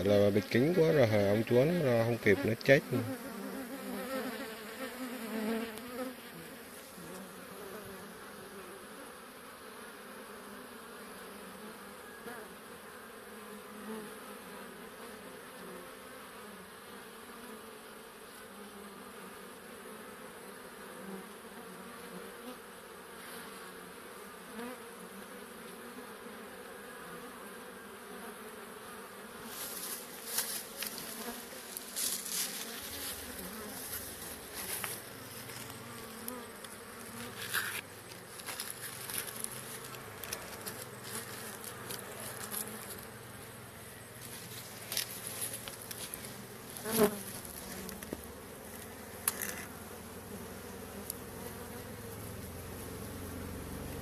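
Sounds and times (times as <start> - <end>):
bee swarm buzzing: 0.0 - 54.0
grass rustling close up: 29.4 - 49.8.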